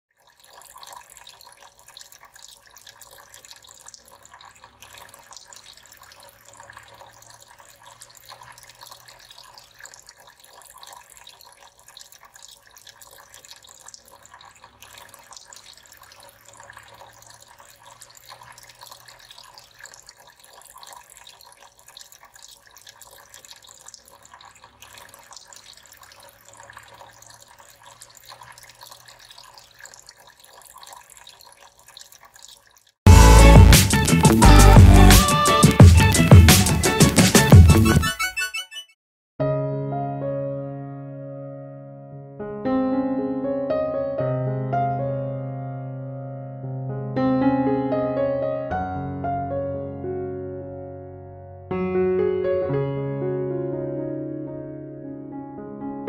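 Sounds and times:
water trickling into fountain basins: 0.1s - 38.0s.

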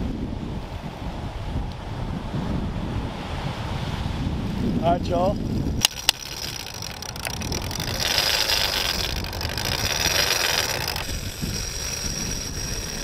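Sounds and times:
wind rumbling on microphone: 0.0s - 13.0s
fishing reel drag whining: 5.8s - 13.0s.

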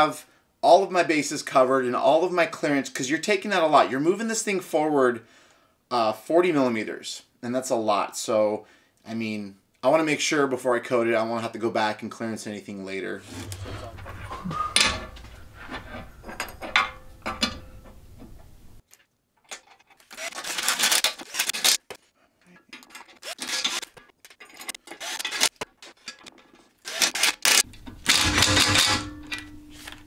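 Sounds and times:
steel scraping on steel: 13.2s - 17.8s
metal parts clanking: 13.2s - 18.1s, 18.9s - 21.9s, 22.7s - 30.0s.

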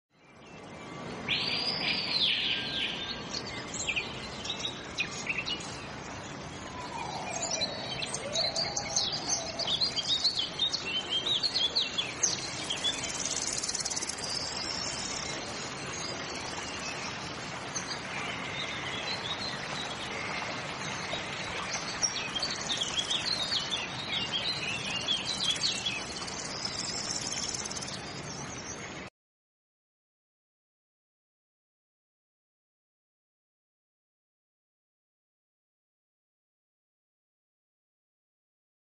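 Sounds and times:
birds chirping and singing: 1.3s - 15.6s, 18.7s - 28.8s.

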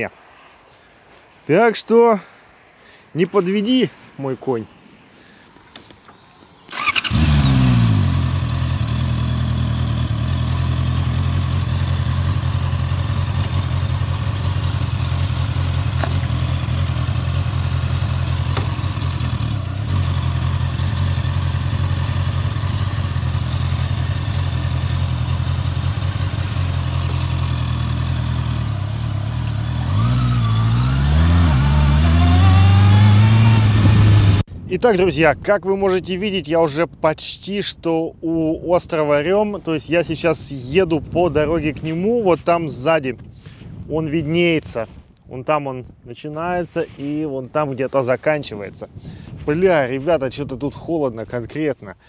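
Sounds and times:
motorcycle engine starting and idling: 6.7s - 34.4s
motorcycle revving and pulling away: 6.7s - 34.5s.

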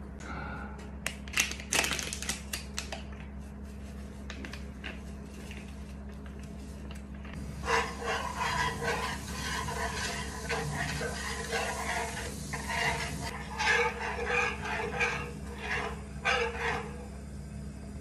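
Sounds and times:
whisk scraping frying pan: 7.5s - 17.2s.

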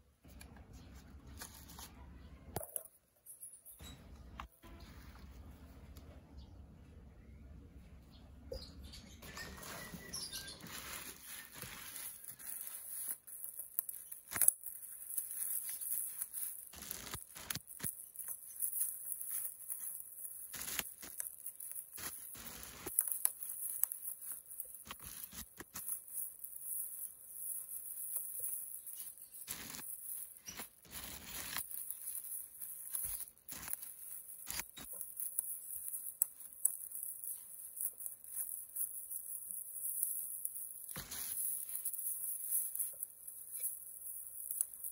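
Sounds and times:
plastic bag crinkling: 1.2s - 2.9s, 9.2s - 44.9s
scissors cutting plastic: 9.4s - 44.9s.

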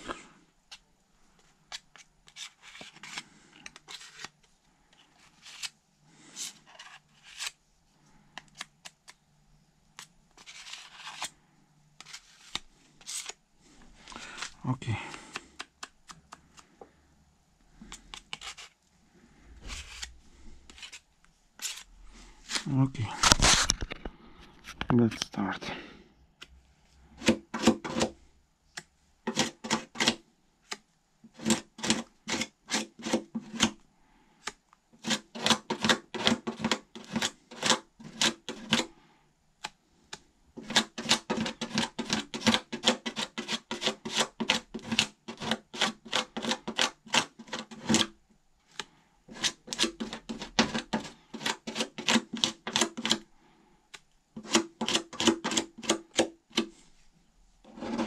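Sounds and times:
hand tool scraping body filler: 29.3s - 30.2s, 31.3s - 33.8s, 35.0s - 38.9s, 40.6s - 48.1s, 49.3s - 53.2s, 54.4s - 56.3s, 57.7s - 58.0s.

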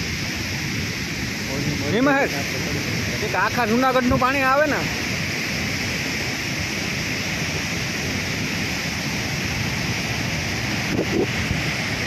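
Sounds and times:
rough surf: 0.0s - 12.0s
wind buffeting microphone: 4.9s - 12.0s.

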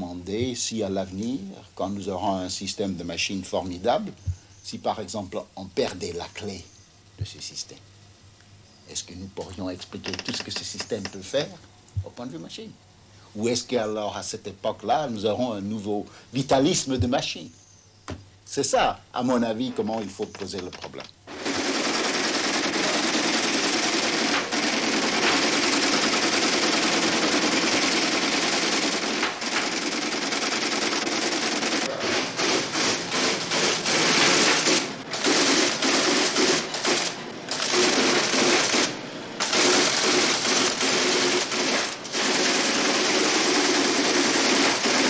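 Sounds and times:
rapid machine-like clatter: 20.4s - 45.0s.

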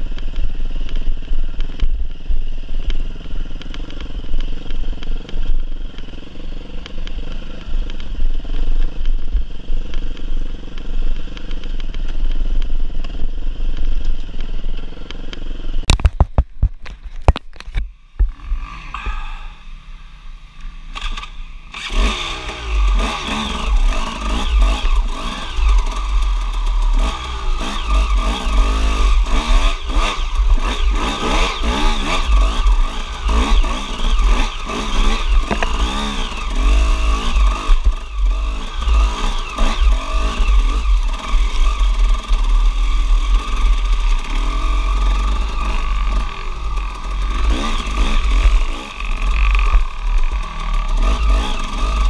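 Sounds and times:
dirt bike engine revving: 18.2s - 52.0s.

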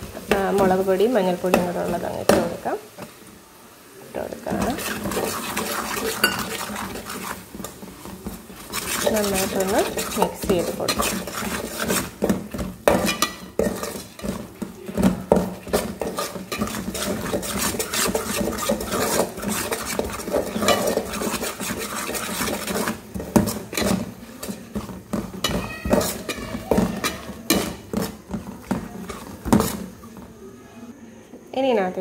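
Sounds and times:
steel spoon scraping metal pan: 4.4s - 14.6s, 15.3s - 30.0s.

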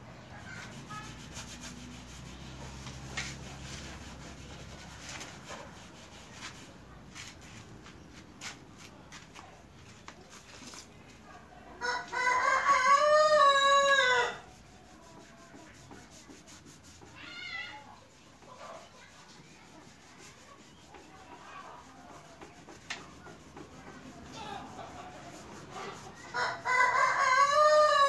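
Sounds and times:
rooster crowing: 11.8s - 14.4s, 26.3s - 28.0s.

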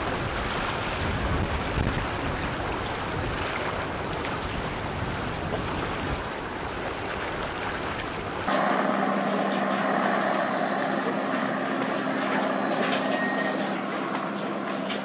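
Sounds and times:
wind on microphone: 0.0s - 7.0s
choppy river water: 0.0s - 15.0s.

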